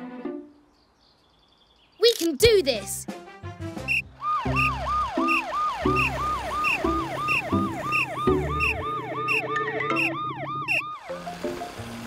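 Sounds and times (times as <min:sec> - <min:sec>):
cartoon police siren wailing: 0:04.2 - 0:11.3.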